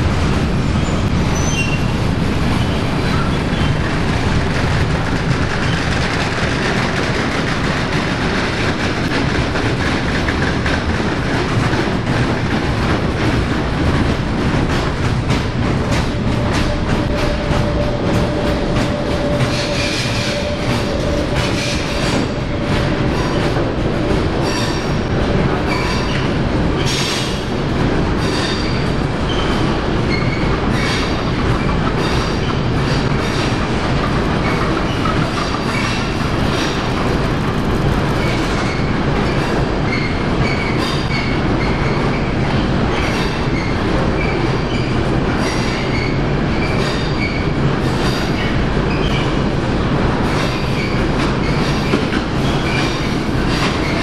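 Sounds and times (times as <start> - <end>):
train wheels clacking over rail joints: 0.0 - 54.0
high-pitched wheel squeal: 0.8 - 1.8.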